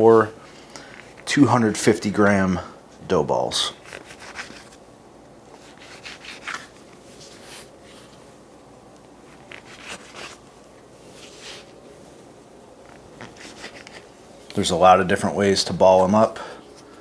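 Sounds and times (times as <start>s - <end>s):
dough pulled apart rubbing: 3.7s - 4.8s, 5.5s - 8.3s, 9.0s - 12.0s, 12.8s - 14.6s.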